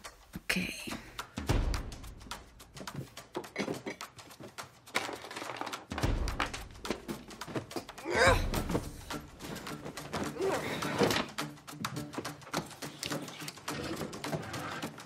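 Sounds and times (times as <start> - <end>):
rummaging knocks and thumps: 2.8 - 11.4.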